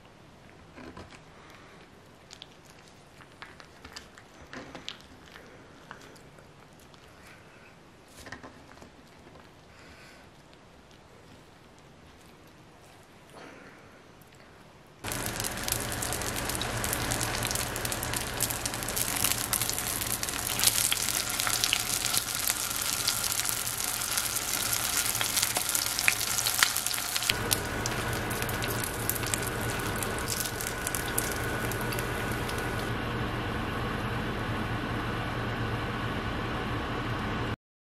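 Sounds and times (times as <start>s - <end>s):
rolls sizzling in oil: 15.0s - 33.0s
steady low hum: 15.0s - 37.6s.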